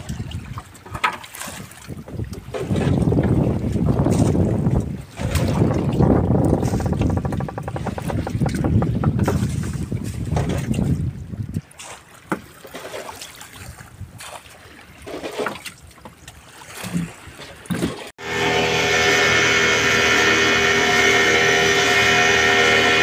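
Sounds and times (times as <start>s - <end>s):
faint wind noise: 1.9s - 11.8s
boat motor running: 2.7s - 9.5s, 18.2s - 23.0s.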